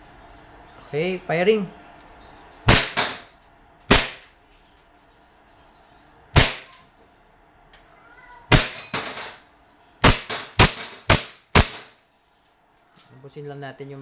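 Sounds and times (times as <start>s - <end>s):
airsoft pistol shots: 2.7s - 3.3s, 3.9s - 4.3s, 6.4s - 6.8s, 8.5s - 9.2s, 10.0s - 12.0s.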